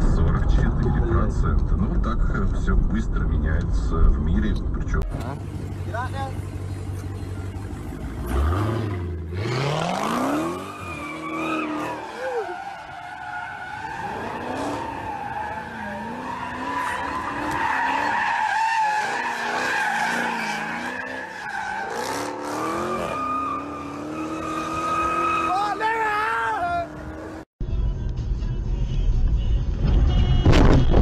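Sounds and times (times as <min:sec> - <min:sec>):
car engine revving: 0:00.0 - 0:18.2, 0:18.9 - 0:25.6.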